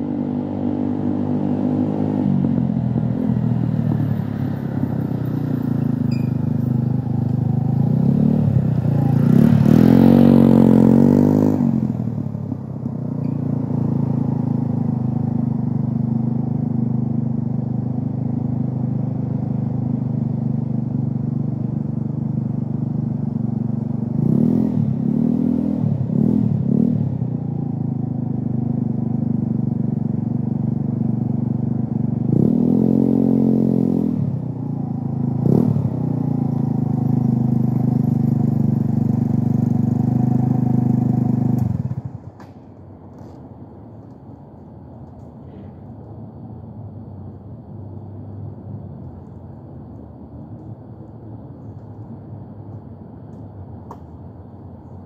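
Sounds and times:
vehicle passing by: 0.0s - 12.6s, 32.2s - 42.4s
low engine-like hum: 0.0s - 55.0s.

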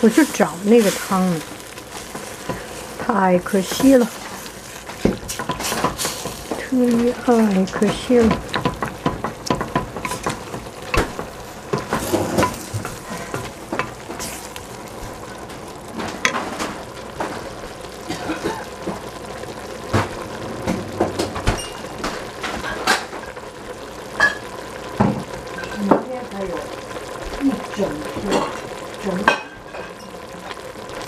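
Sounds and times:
wooden spatula scraping pot: 0.0s - 17.5s
vegetables sizzling: 0.0s - 31.0s.

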